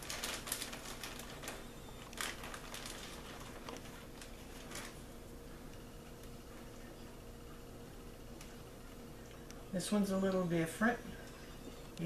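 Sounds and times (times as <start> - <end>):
plastic bag crinkling: 0.0 - 5.1.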